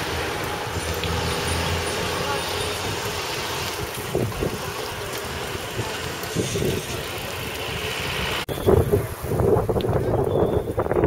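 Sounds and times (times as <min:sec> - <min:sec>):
road rumble: 0:00.0 - 0:11.0
wind buffeting microphone: 0:02.8 - 0:11.0.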